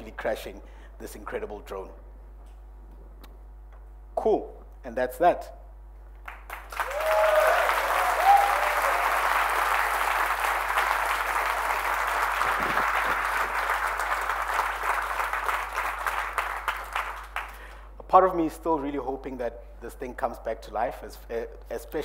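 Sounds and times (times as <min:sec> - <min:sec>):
audience applauding: 0:06.2 - 0:17.8
short cheers: 0:06.7 - 0:09.6.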